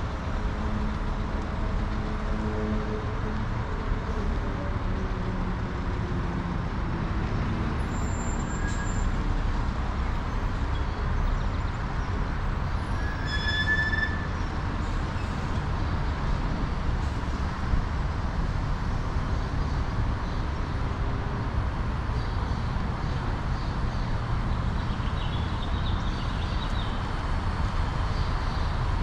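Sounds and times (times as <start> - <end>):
vehicle rumble: 0.0 - 29.0
high metallic squeal: 7.9 - 9.1, 12.8 - 14.4.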